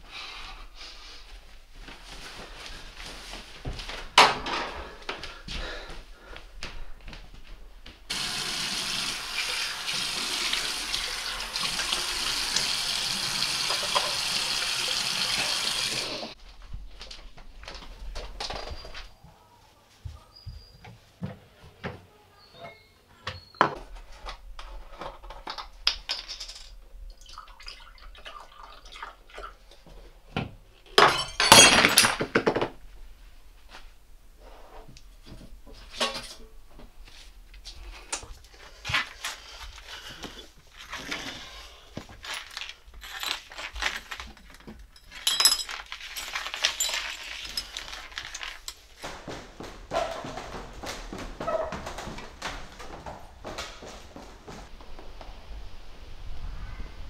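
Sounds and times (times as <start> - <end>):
glass shattering on tiled floor: 31.0 - 32.7, 42.3 - 48.8
light clinks and knocks: 42.2 - 48.8.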